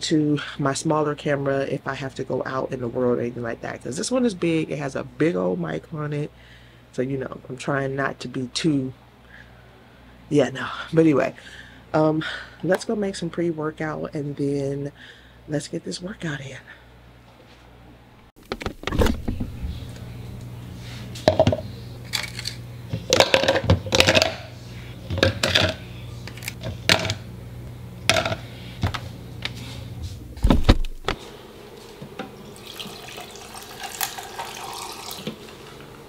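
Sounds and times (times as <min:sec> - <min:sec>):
freezer hum: 0:18.4 - 0:36.0
water running from dispenser: 0:32.4 - 0:36.0.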